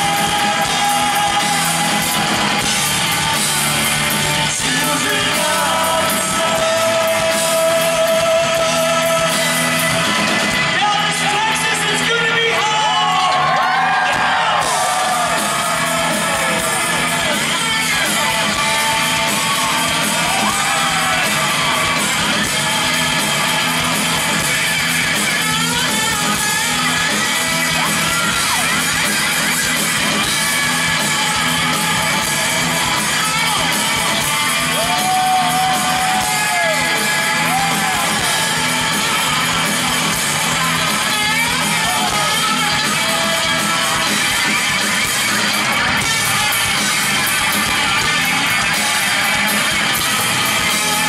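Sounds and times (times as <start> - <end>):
person singing: 0.0 - 2.4, 4.2 - 10.3, 30.9 - 44.8
rock band playing live: 0.0 - 51.0.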